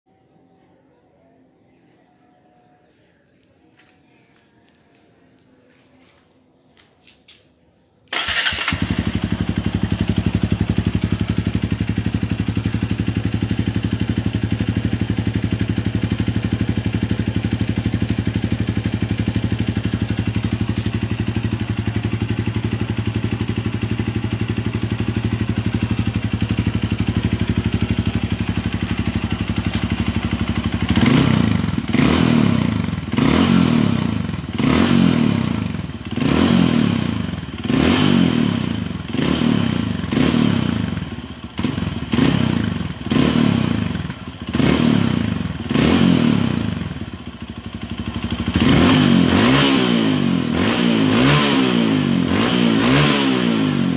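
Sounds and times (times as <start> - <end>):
motorcycle engine idling: 8.1 - 49.6.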